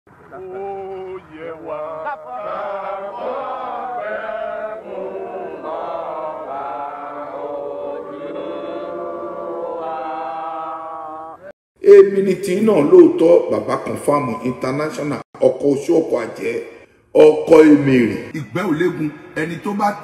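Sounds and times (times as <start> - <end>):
voices chanting: 0.2 - 11.5.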